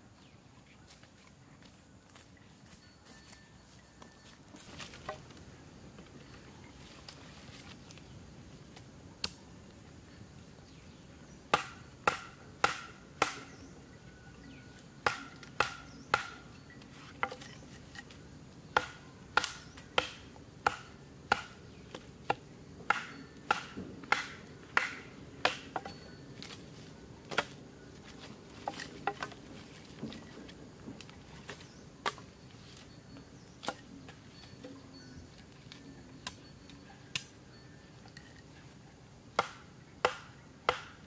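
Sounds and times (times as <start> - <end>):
knife chopping bamboo: 11.5 - 13.5, 15.0 - 16.4, 18.7 - 26.6, 39.4 - 41.0.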